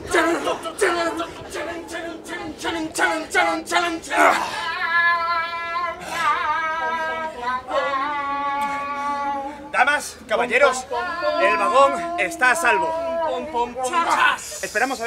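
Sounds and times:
woman singing unaccompanied: 0.0 - 9.7, 10.5 - 14.3.

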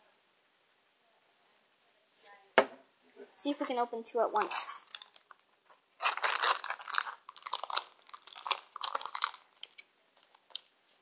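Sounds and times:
foil wrapper crackling: 4.4 - 11.0.

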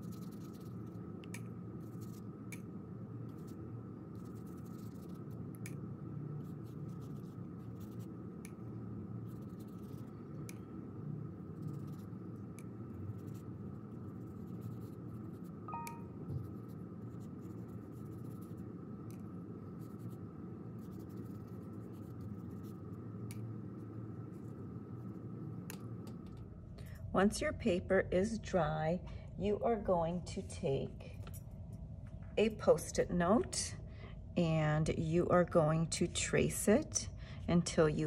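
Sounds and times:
brush scratching on paper: 0.0 - 1.0, 1.8 - 2.3, 3.3 - 5.5, 6.4 - 8.2, 9.2 - 10.2, 11.5 - 12.2, 13.1 - 15.7, 16.4 - 18.7, 19.7 - 23.0
steady low hum: 0.0 - 38.0.

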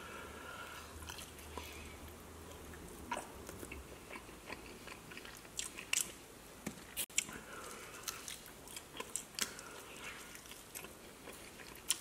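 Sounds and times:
chewing chicken wings: 2.5 - 6.2, 7.1 - 12.0.

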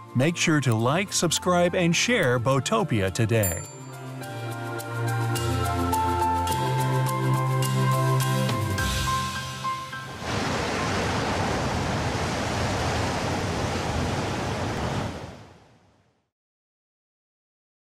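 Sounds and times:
background music: 0.0 - 10.4
waves breaking: 9.6 - 15.8.

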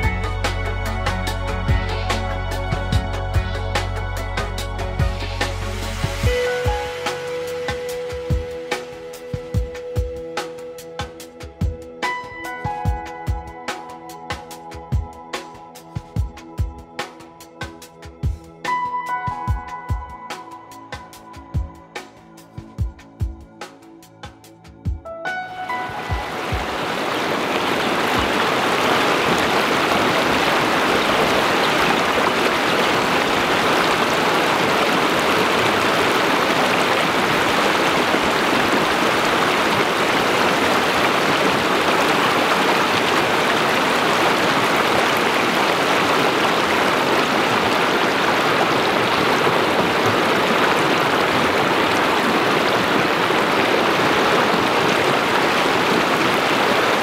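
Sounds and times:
river rushing over rocks: 25.7 - 57.0.

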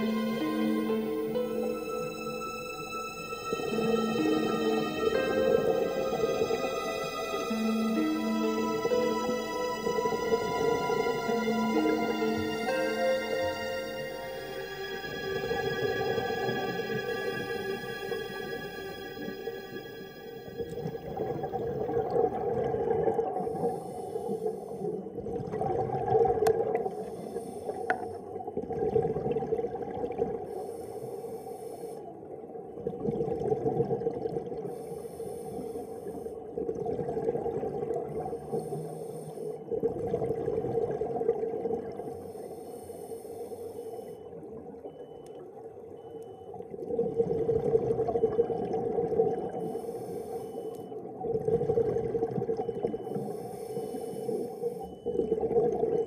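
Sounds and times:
exhaled bubbles rumbling: 20.6 - 23.6, 25.0 - 26.9, 28.3 - 30.5, 32.7 - 34.7, 36.5 - 38.6, 39.7 - 42.1, 46.6 - 49.7, 51.0 - 53.1.

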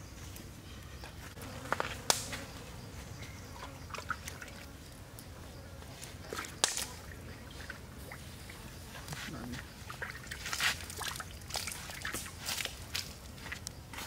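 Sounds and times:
fire cracks and snaps: 2.1 - 2.3, 6.6 - 6.9.

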